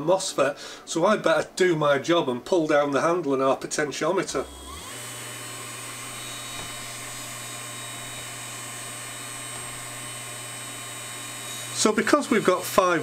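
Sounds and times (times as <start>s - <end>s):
electric motor humming with whine: 4.4s - 13.0s.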